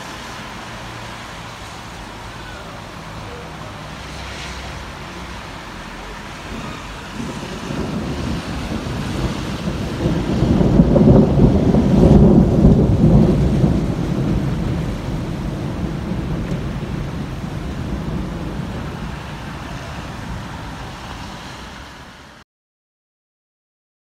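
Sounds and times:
rolling thunder: 3.3s - 22.2s.

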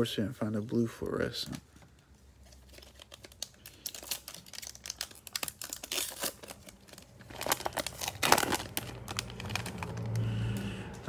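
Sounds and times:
foil wrapper crinkling: 2.3s - 10.6s.

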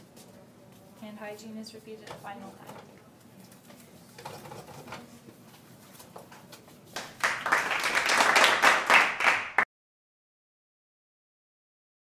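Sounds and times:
hand-clapping applause: 7.0s - 9.7s.

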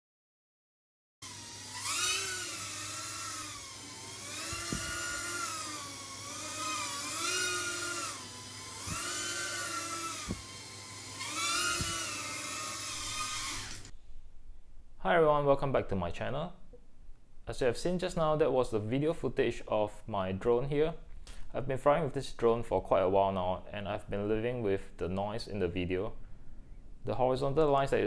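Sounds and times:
quadcopter propellers whining: 1.2s - 13.9s.

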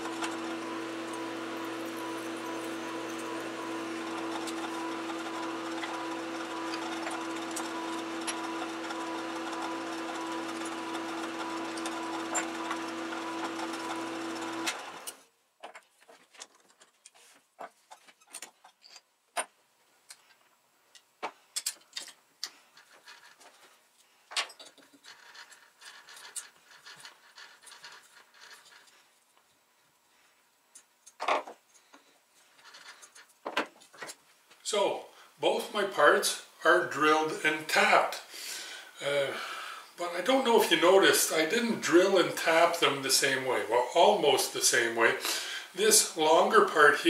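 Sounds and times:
metal lathe running: 0.0s - 15.2s
metal parts and tools clicking: 17.8s - 23.7s, 24.3s - 28.9s.

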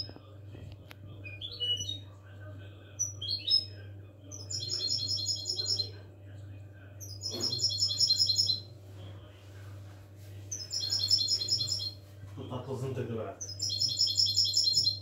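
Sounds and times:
steady low hum: 0.0s - 15.0s
finch twittering: 7.0s - 8.7s, 10.6s - 12.0s, 13.4s - 15.0s.

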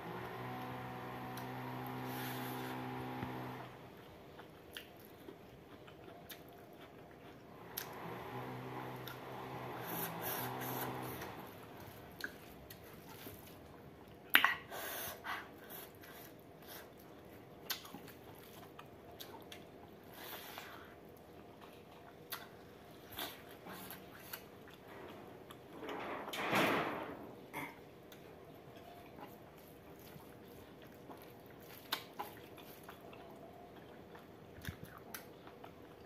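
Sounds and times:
chewing and wet mouth sounds: 3.9s - 8.0s, 11.7s - 14.9s, 15.5s - 25.8s, 28.0s - 36.0s.

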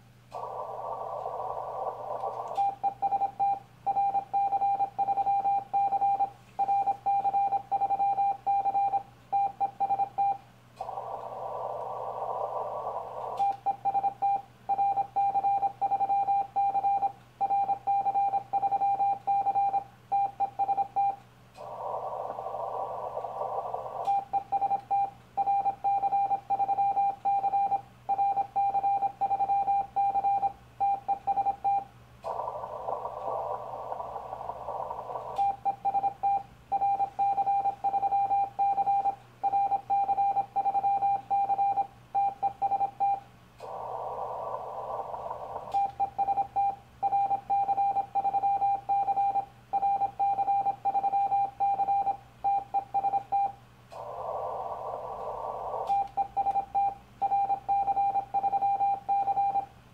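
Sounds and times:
radio receiver hiss: 0.0s - 3.6s, 9.4s - 14.2s, 20.3s - 25.1s, 31.0s - 37.8s, 42.3s - 46.8s, 53.2s - 57.7s
morse code beeps: 2.5s - 10.4s, 13.4s - 21.2s, 23.5s - 43.2s, 45.2s - 53.6s, 55.7s - 59.7s.

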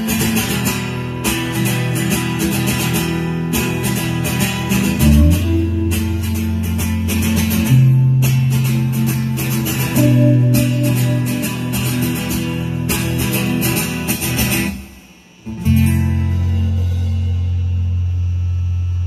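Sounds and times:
strummed acoustic guitar: 0.0s - 18.5s
live rock band playing: 4.7s - 14.1s.

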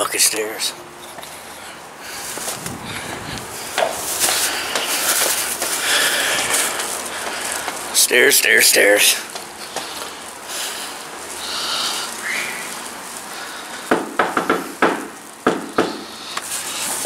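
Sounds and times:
knocking on a door: 13.9s - 16.0s.

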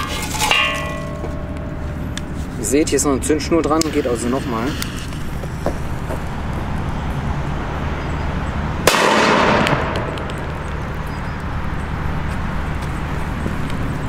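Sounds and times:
firecracker bang in metal pan: 8.9s - 10.6s.

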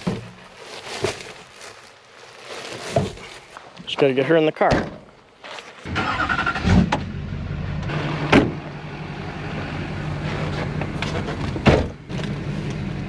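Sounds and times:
vehicle engine humming: 5.9s - 13.0s.

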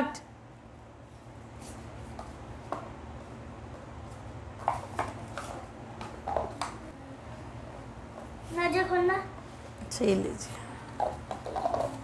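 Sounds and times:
steady low hum: 0.0s - 12.0s
paper cups tapping on table: 4.6s - 6.8s, 10.9s - 12.0s.

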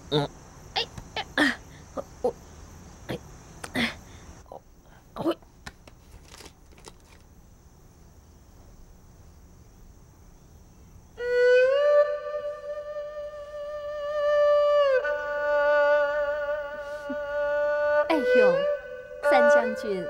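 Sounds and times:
bowed string long notes: 11.2s - 20.0s.

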